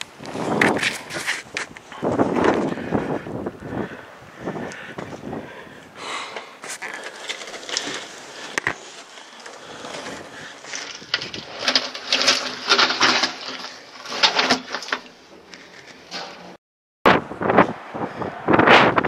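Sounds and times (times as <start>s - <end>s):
gravel crunching underfoot: 0.0s - 16.6s.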